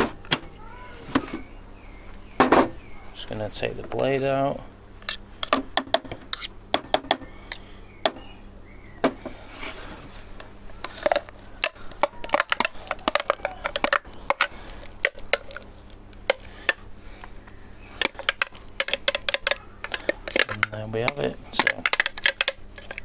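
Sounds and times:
spoon scraping plastic jug: 0:18.0 - 0:23.0.

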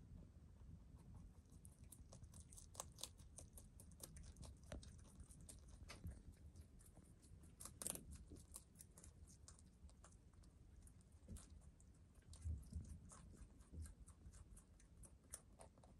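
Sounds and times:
rabbit chewing greens: 0:00.0 - 0:15.9.

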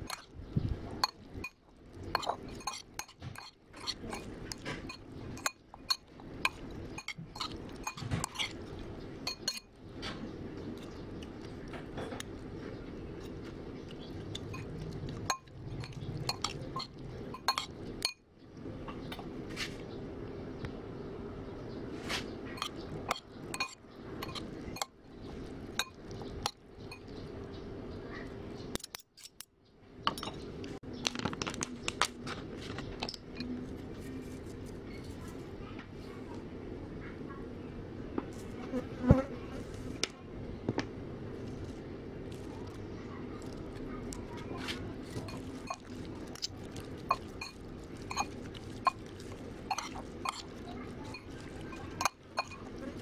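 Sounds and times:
spoons clinking against a bowl: 0:00.0 - 0:00.3, 0:01.0 - 0:09.8, 0:14.0 - 0:18.2, 0:22.6 - 0:25.0, 0:25.7 - 0:27.2, 0:44.1 - 0:53.0
low background hum: 0:00.0 - 0:53.0
wet squishing and rustling: 0:41.3 - 0:53.0.

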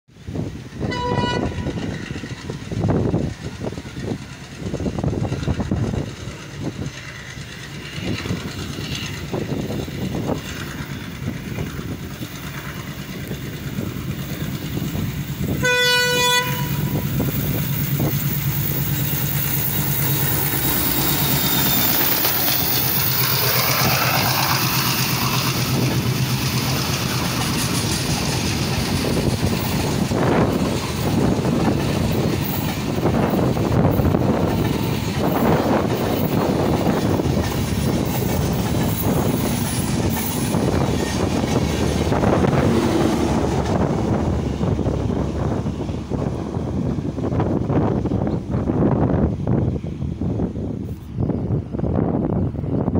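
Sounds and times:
train wheels on rails: 0:00.1 - 0:52.9
locomotive engine drone: 0:00.2 - 0:52.9
wheels clacking over rail joints: 0:00.7 - 0:48.6
train horn blast: 0:00.8 - 0:01.9, 0:15.5 - 0:17.1.

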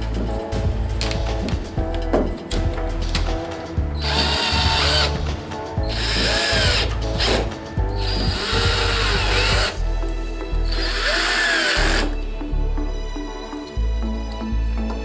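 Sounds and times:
background music: 0:00.0 - 0:15.0
cordless drill driving screws: 0:04.0 - 0:05.2, 0:05.8 - 0:09.8, 0:10.7 - 0:12.2.

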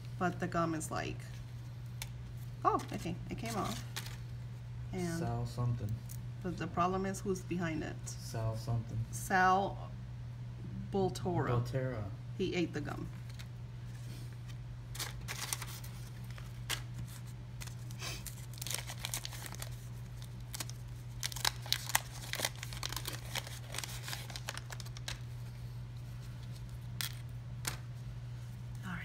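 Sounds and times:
steady low hum: 0:00.0 - 0:29.0
wax paper crinkling and tearing: 0:02.0 - 0:04.3, 0:13.2 - 0:28.0.

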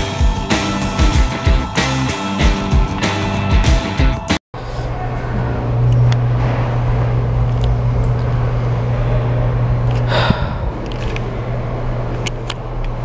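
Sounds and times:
person gasping: 0:10.1 - 0:11.0.

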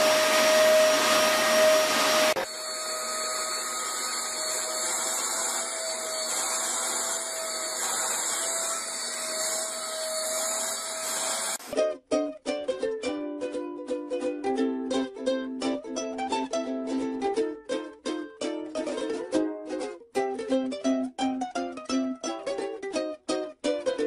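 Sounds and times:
electric appliance motor whine: 0:00.0 - 0:11.6.

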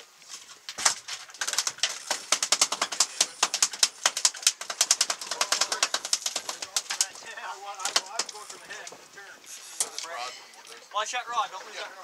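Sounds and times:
fishing reel clicking: 0:09.5 - 0:10.1.

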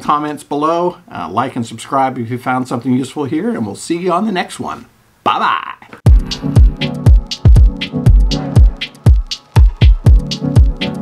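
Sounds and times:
electronic dance music: 0:06.1 - 0:11.0.

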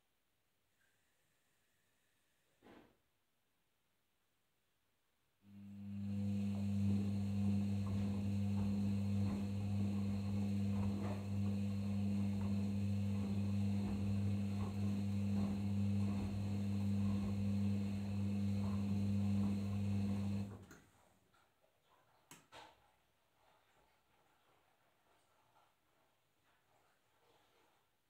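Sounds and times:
washing machine motor hum: 0:05.5 - 0:20.7.

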